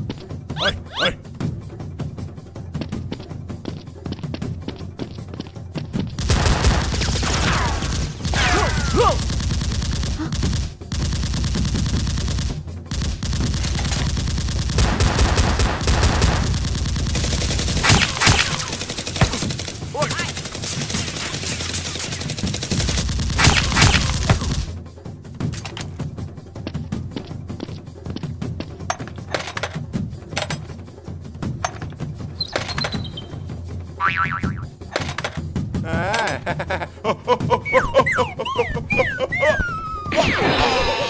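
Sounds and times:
machine-gun bursts: 6.2s - 24.7s.

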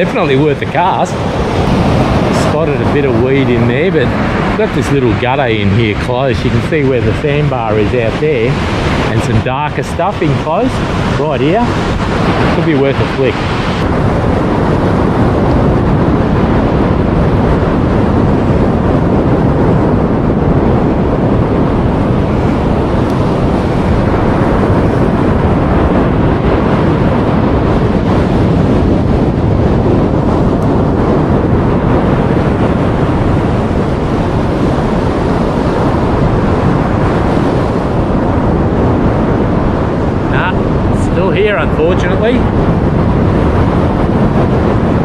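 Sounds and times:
surf breaking on beach: 0.0s - 45.0s
wind on microphone: 0.0s - 45.0s.

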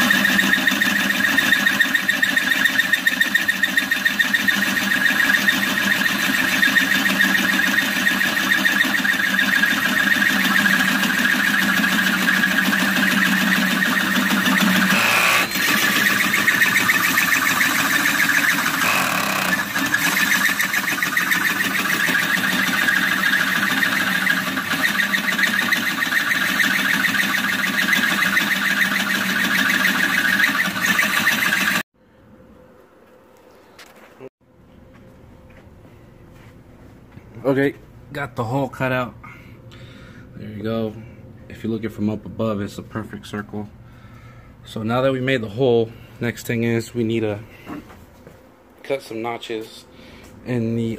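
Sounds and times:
hole saw cutting steel: 0.0s - 31.9s.

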